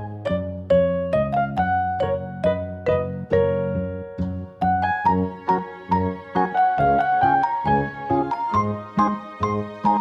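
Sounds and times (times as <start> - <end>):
keyboard melody: 0.0 - 10.0.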